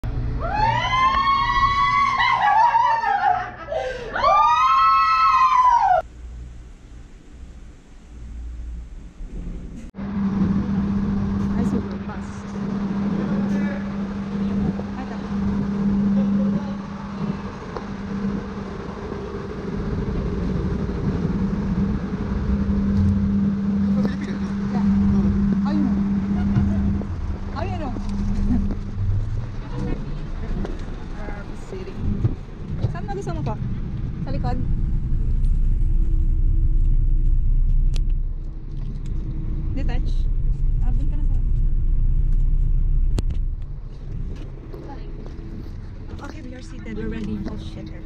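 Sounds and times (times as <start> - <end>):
woman screaming: 0.4 - 6.0
laughter: 2.2 - 3.9
bus engine idling: 6.0 - 48.0.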